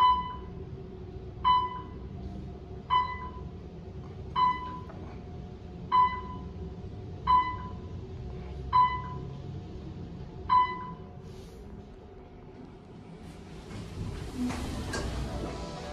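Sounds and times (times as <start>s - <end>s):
elevator floor beep: 0.0s - 0.7s, 1.3s - 2.2s, 2.8s - 5.0s, 5.8s - 8.0s, 8.7s - 9.4s, 10.4s - 11.1s
elevator hum: 0.0s - 15.9s.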